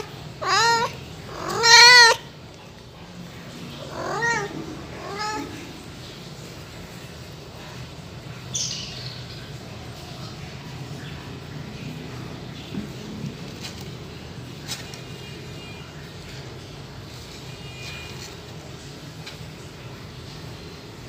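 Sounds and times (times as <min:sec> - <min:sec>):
kitten meowing: 0:00.0 - 0:02.2, 0:03.8 - 0:05.7.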